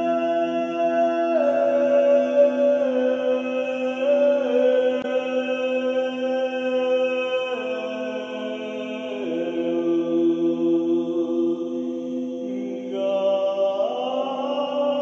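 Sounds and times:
person chanting long notes: 0.0s - 15.0s.

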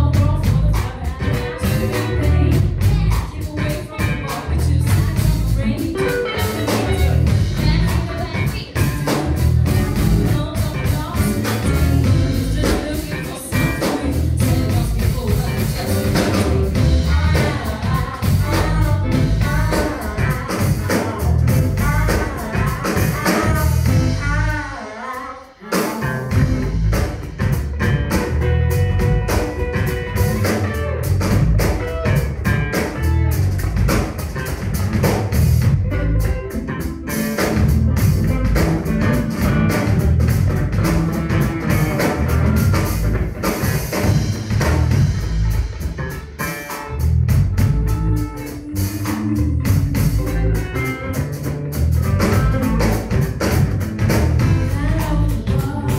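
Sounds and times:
woman singing: 0.0s - 26.7s, 54.4s - 55.9s
bass guitar: 0.0s - 55.9s
drum kit: 0.0s - 55.9s
electric guitar: 0.0s - 55.9s.

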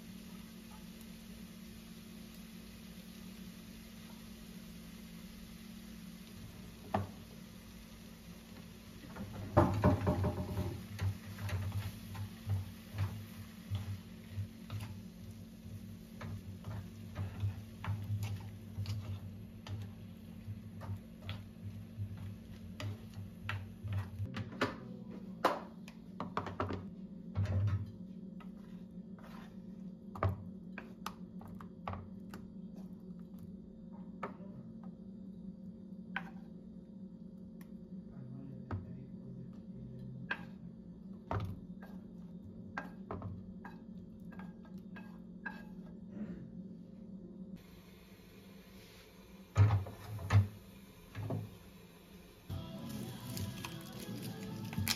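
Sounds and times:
wooden spoon scraping frying pan: 9.0s - 24.3s, 28.4s - 29.8s, 42.8s - 46.0s.

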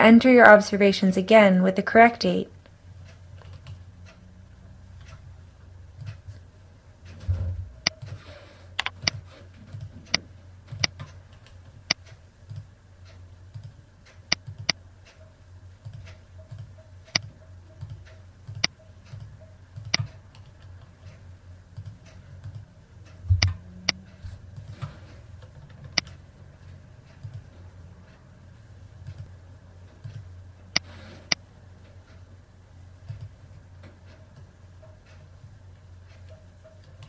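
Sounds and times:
mouse and keyboard clicks: 8.8s - 12.7s.

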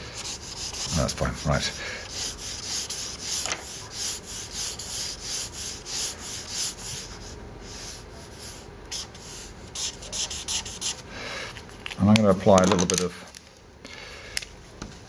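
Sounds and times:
marker pen rubbing on paper: 0.0s - 11.0s.

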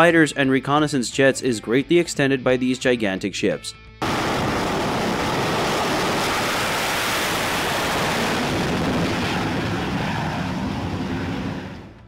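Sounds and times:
jet engines roaring: 4.0s - 12.0s.

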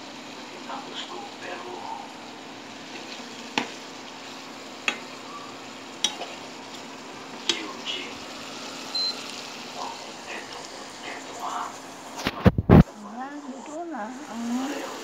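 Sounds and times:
food sizzling in a frying pan: 0.0s - 15.0s
spatula clicking on pan: 4.8s - 5.1s, 6.0s - 6.4s.

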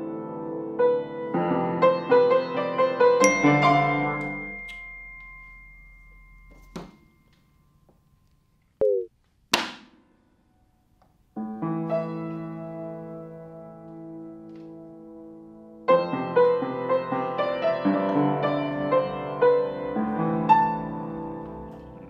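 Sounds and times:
piano chords: 0.0s - 6.5s, 11.4s - 22.0s.

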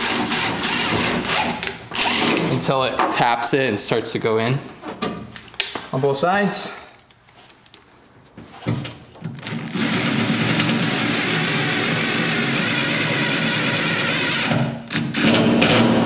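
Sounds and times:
cordless drill whining: 9.4s - 15.9s.

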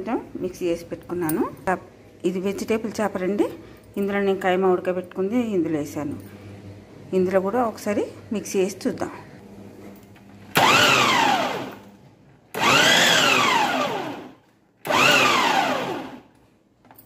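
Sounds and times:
electric chopper motor whirring: 10.5s - 11.8s, 12.5s - 16.3s.

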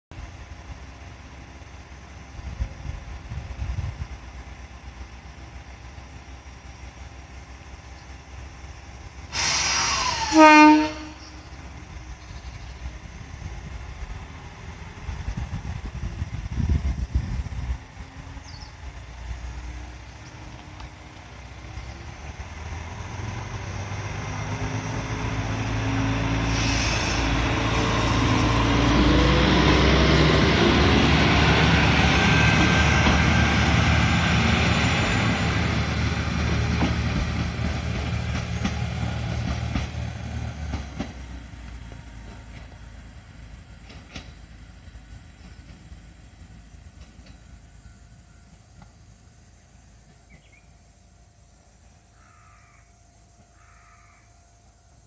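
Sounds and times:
railcar rumbling on rails: 0.1s - 55.0s
diesel engine revving: 21.1s - 40.9s.

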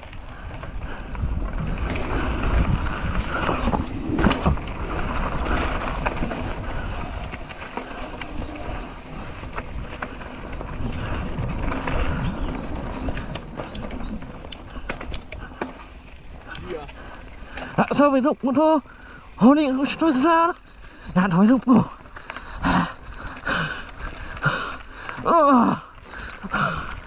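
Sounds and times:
wind rumbling on microphone: 0.0s - 17.8s
mountain bike rolling and rattling: 0.0s - 27.0s
scattered clicks: 11.4s - 18.7s.

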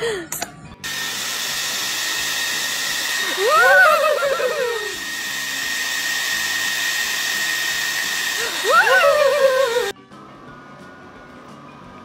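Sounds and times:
hair dryer whirring: 0.8s - 10.0s.

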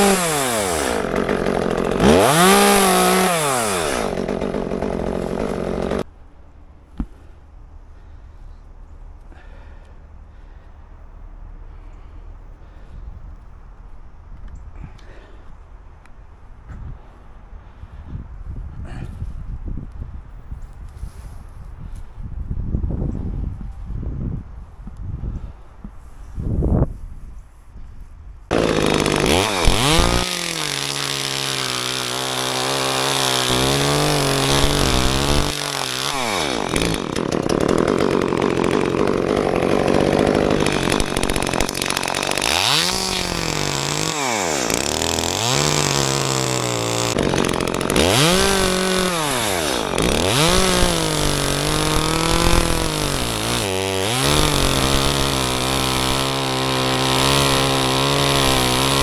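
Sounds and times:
chainsaw cutting wood: 0.0s - 6.1s, 28.5s - 59.0s.

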